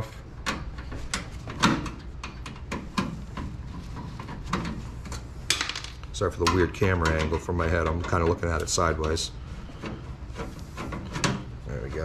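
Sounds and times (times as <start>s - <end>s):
metal knocks and clicks: 5.5s - 9.2s.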